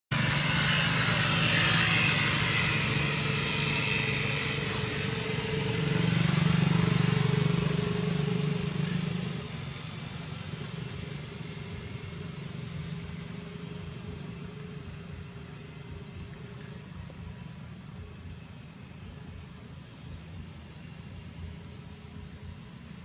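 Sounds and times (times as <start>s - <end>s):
low engine drone: 0.1s - 23.0s
high hiss: 0.2s - 23.0s.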